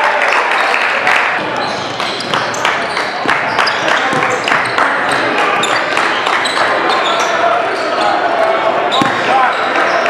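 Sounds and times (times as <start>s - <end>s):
echoing background voices: 1.2s - 10.0s
basketball bouncing on court: 1.4s - 6.7s, 8.9s - 9.5s
shoe squeaks: 1.4s - 10.0s.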